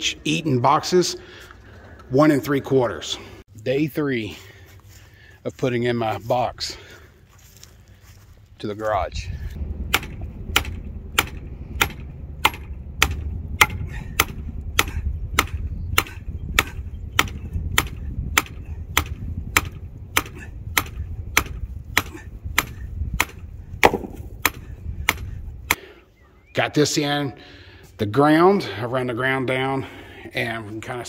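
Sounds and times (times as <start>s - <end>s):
sledgehammer striking metal rod: 9.9s - 25.3s.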